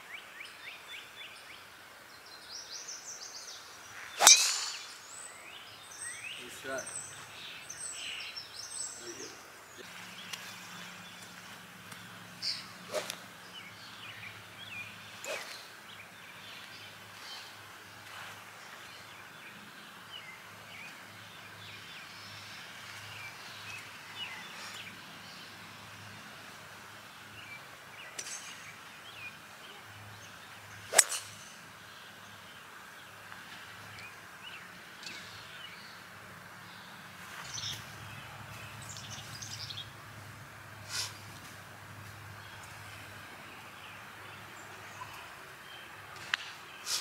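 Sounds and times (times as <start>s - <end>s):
birds chirping: 0.1s - 26.2s, 27.0s - 47.0s
golf club striking ball: 4.2s - 5.1s, 30.9s - 31.5s.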